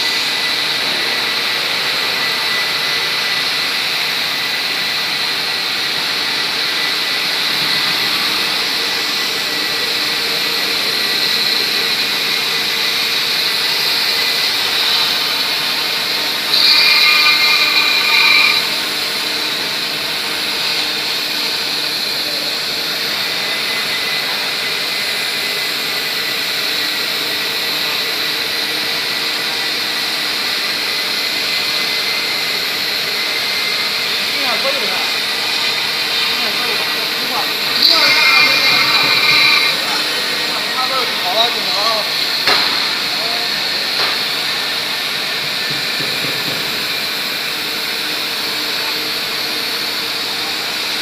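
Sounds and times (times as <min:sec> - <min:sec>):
hiss of foam cutting: 0:00.0 - 0:24.5, 0:31.4 - 0:49.4
router spindle whining: 0:00.0 - 0:51.0.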